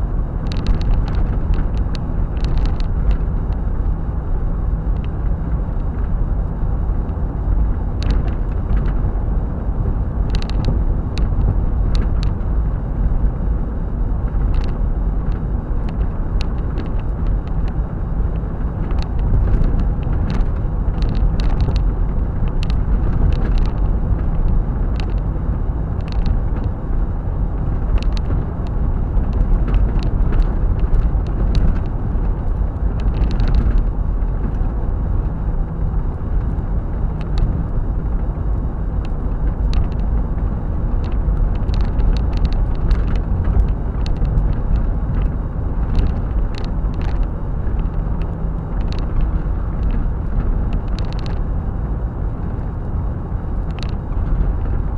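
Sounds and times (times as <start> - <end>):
car road and engine noise: 0.0 - 54.9
brief clicks and rattles: 18.8 - 23.9, 26.0 - 26.7, 41.0 - 51.4, 53.6 - 54.8.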